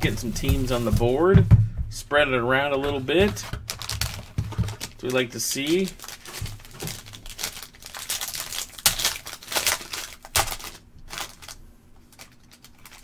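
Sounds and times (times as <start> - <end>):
foil wrapper crinkling and tearing: 2.9 - 13.0.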